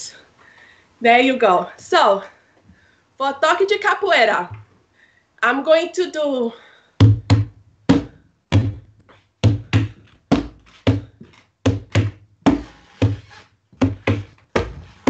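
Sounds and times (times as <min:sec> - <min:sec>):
hand drum rhythm: 0:07.0 - 0:11.1, 0:11.7 - 0:13.2.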